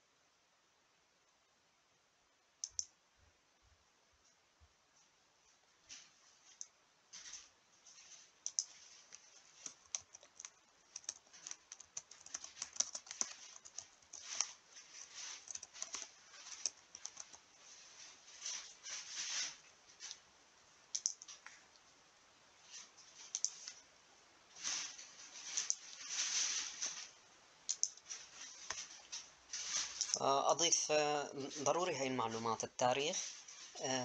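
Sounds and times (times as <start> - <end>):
computer keyboard typing: 2.6 - 2.9, 8.4 - 17.5, 20.9 - 21.5, 23.2 - 23.7, 27.7 - 28.1.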